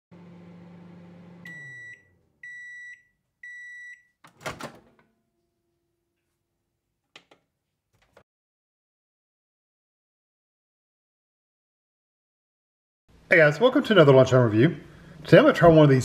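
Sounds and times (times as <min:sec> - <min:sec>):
microwave oven hum: 0:00.1 - 0:05.6.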